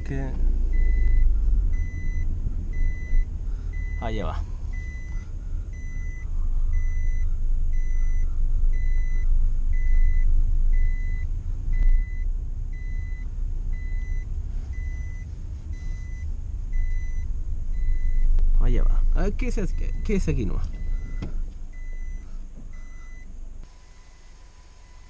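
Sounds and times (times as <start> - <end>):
engine and road rumble: 0.0 - 25.0
dashboard warning chime beeping: 0.7 - 18.3, 19.0 - 25.0
thump: 21.0 - 21.4.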